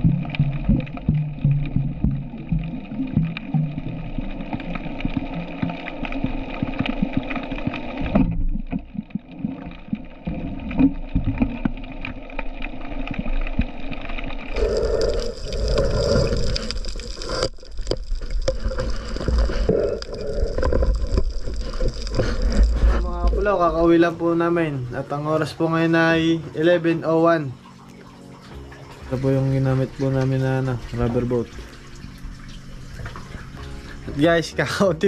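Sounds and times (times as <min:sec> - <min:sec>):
muffled underwater noise: 0:14.4 - 0:26.6.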